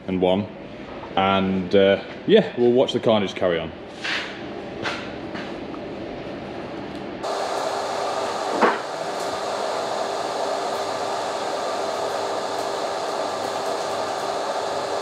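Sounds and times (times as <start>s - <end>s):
fan noise with hum: 0.0s - 15.0s
arc welder: 7.2s - 15.0s
sharp electrical crack: 7.2s - 15.0s.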